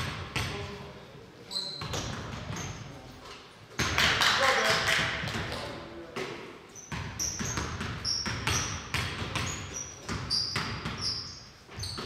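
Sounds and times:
sneaker squeaks: 0:01.4 - 0:03.5, 0:06.3 - 0:12.0
basketball bouncing on hardwood: 0:06.9 - 0:11.1.

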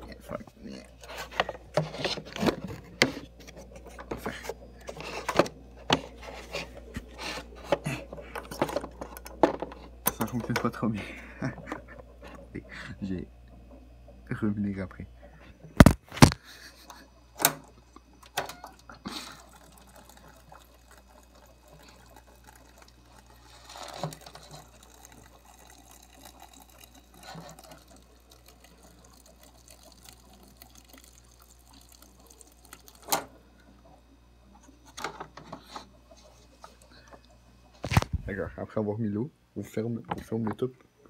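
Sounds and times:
water pouring into a cup: 0:18.0 - 0:35.0, 0:35.6 - 0:38.0.

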